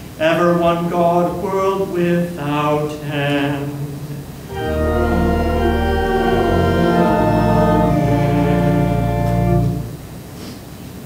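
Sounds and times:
church organ chords: 3.5s - 10.1s.

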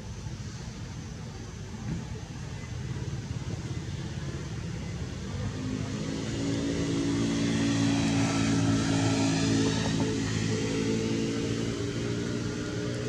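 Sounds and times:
motor engine running: 7.2s - 13.0s.

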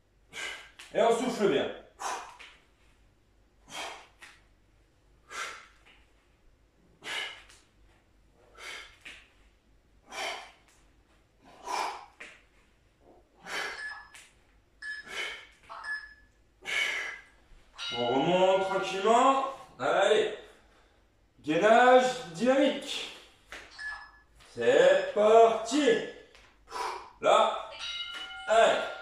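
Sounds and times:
man breathing out forcefully: 7.0s - 7.5s, 8.4s - 9.0s, 10.0s - 10.7s, 13.4s - 13.8s.

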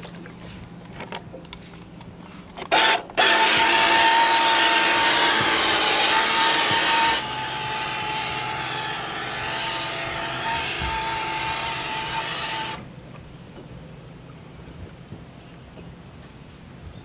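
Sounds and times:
rc boat motor whining: 2.6s - 12.9s.

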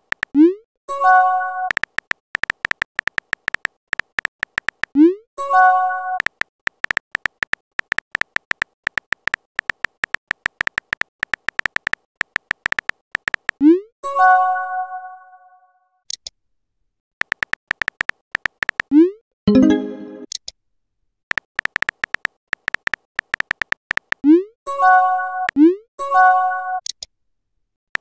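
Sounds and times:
keyboard tapping clicks: 1.7s - 5.0s, 6.2s - 13.6s, 17.2s - 18.9s, 21.3s - 24.2s
multi-tone chime: 19.5s - 20.3s.

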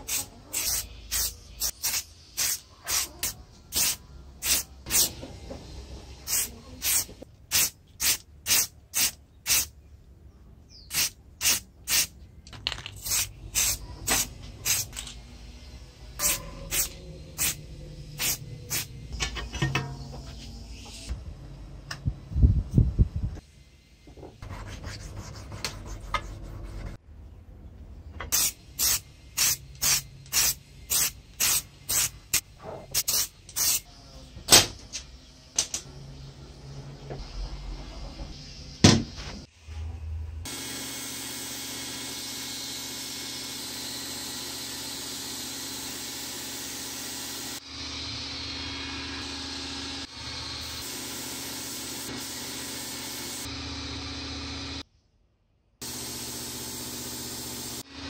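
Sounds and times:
spray can hissing bursts: 0.0s - 5.2s, 6.2s - 9.7s, 10.9s - 12.2s, 13.0s - 15.0s, 16.2s - 18.9s, 28.3s - 32.4s, 33.0s - 33.8s, 50.7s - 53.5s.

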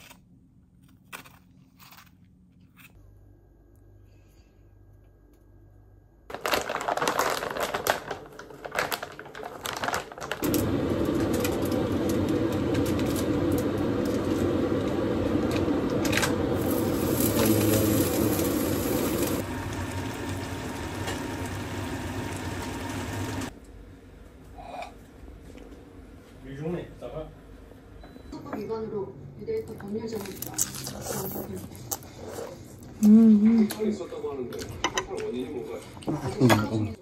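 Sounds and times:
dough crackling in hot oil: 6.3s - 23.5s
oil sizzling: 10.4s - 23.5s.

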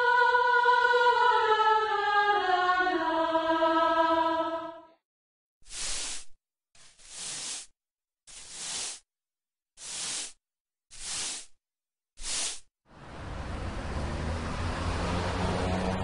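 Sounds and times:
push broom sweeping a wooden floor: 5.6s - 9.1s, 9.8s - 11.6s, 12.2s - 12.7s.

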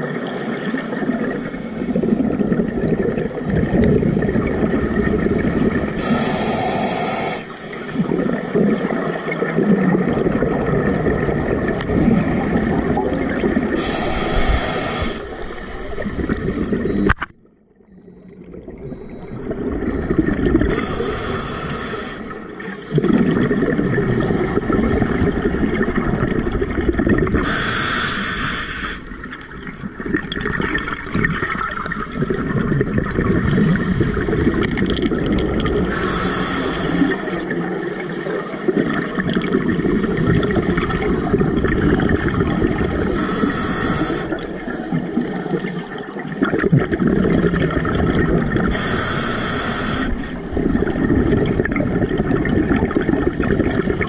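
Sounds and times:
bubbling exhales: 0.8s - 17.1s, 18.5s - 54.0s
regulator hissing inhales: 6.0s - 7.8s, 13.8s - 15.4s, 20.7s - 23.1s, 27.4s - 29.1s, 35.9s - 37.3s, 42.8s - 45.8s, 48.7s - 50.5s.

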